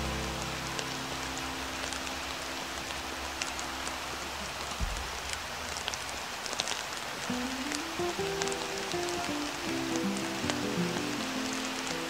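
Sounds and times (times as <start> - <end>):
rain falling: 0.0 - 12.0
raindrops ticking: 0.0 - 12.0
low thud: 4.8 - 5.2.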